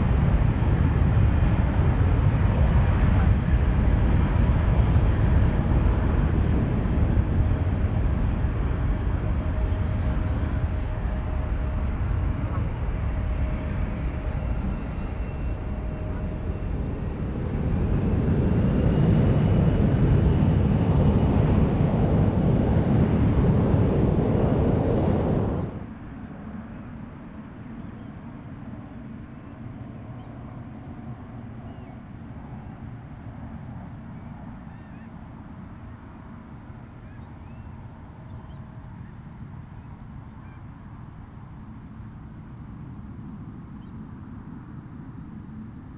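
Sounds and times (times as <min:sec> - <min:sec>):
jet engine roar: 0:00.0 - 0:45.9
faint bird chirps: 0:31.6 - 0:32.0, 0:34.1 - 0:35.1, 0:37.0 - 0:39.1, 0:40.3 - 0:40.7.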